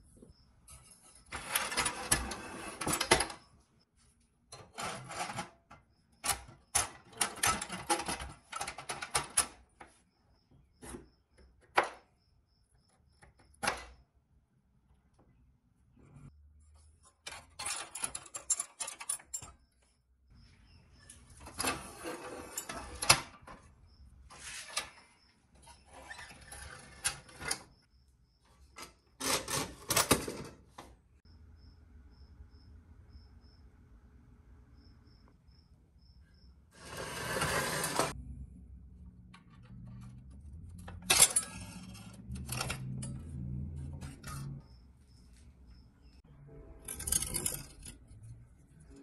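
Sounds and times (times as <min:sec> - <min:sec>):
metal toy scraping and rattling: 0:00.7 - 0:03.5, 0:04.5 - 0:09.6, 0:16.8 - 0:19.6, 0:21.0 - 0:23.7, 0:24.3 - 0:27.8, 0:36.8 - 0:38.2, 0:39.6 - 0:44.7, 0:46.8 - 0:49.0
metal toy parts clinking: 0:17.2 - 0:19.6, 0:46.8 - 0:48.4.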